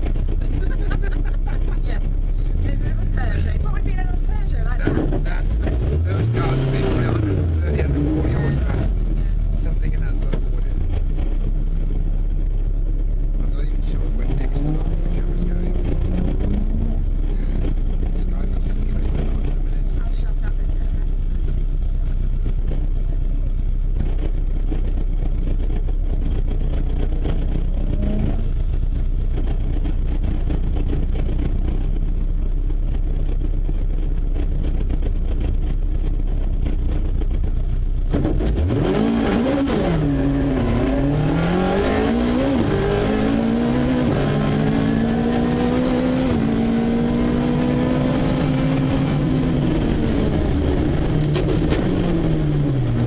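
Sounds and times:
car engine idling: 0:00.0 - 0:53.0
car accelerating through gears: 0:05.0 - 0:10.4, 0:13.8 - 0:19.6, 0:27.2 - 0:28.6, 0:38.1 - 0:53.0.

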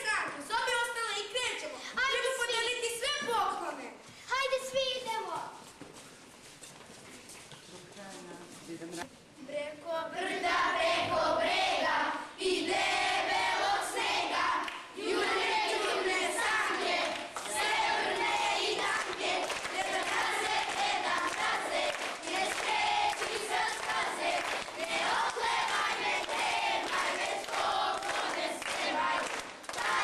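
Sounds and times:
children singing together: 0:10.2 - 0:30.0.

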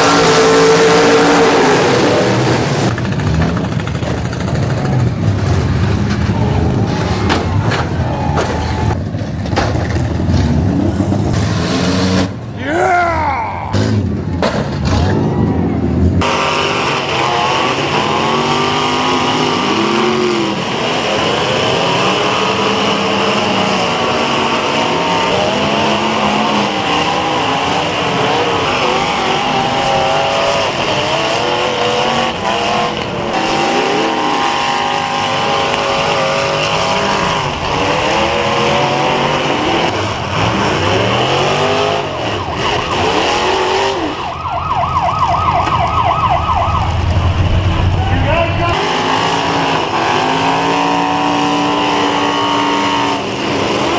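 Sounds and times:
car engines revving: 0:00.0 - 0:53.9
warbling siren-like tone: 0:41.9 - 0:48.2
low hum: 0:46.0 - 0:48.8.

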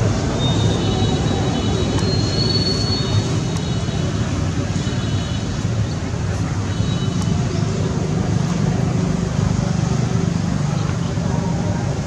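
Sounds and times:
low rumble of vehicle noise: 0:00.0 - 0:12.0.

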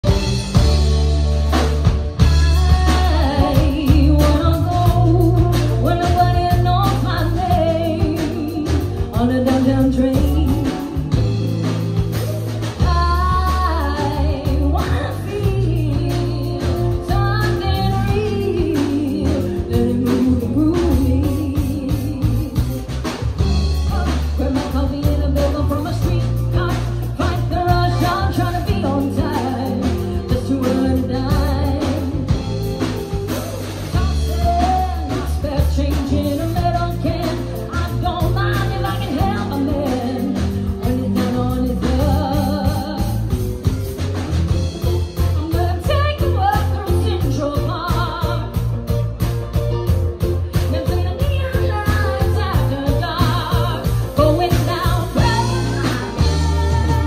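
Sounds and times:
woman singing lead: 0:00.0 - 0:43.9, 0:44.5 - 0:57.0
bass guitar: 0:00.0 - 0:57.0
drums: 0:00.0 - 0:57.0
electric guitar: 0:00.0 - 0:57.0.

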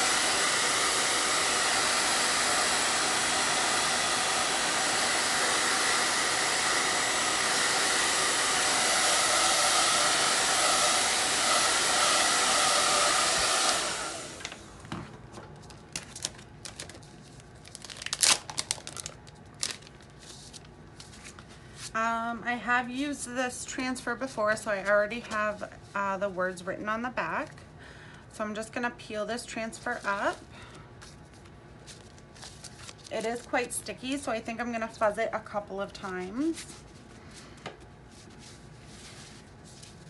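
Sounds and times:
hair dryer blowing: 0:00.0 - 0:14.7.

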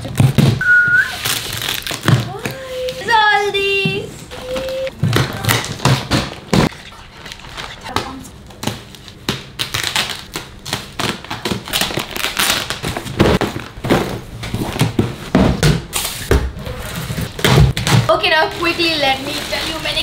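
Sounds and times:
packing tape ripping: 0:00.0 - 0:03.0, 0:08.6 - 0:13.8
plastic wrapping crackling: 0:01.0 - 0:03.7, 0:08.8 - 0:13.8, 0:17.7 - 0:20.0.

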